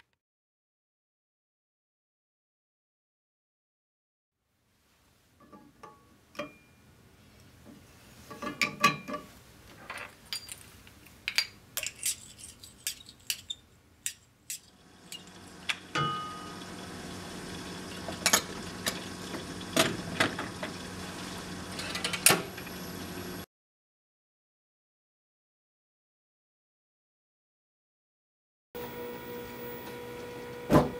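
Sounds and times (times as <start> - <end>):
metal stirrer clinking in glass tube: 11.8 - 15.3
machine hum: 14.8 - 23.4, 28.8 - 30.9.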